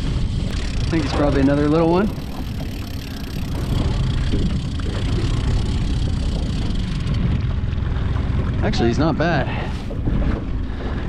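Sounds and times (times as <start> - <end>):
choppy water: 0.0 - 11.0
outboard motor running: 0.0 - 11.0
wind: 0.0 - 11.0.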